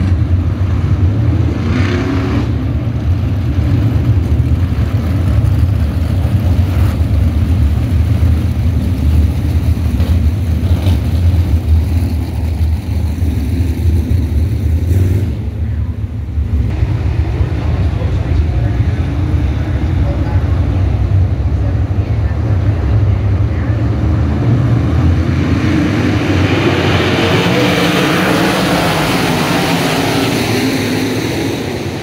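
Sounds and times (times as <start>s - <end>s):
race car engines rumbling: 0.0s - 32.0s.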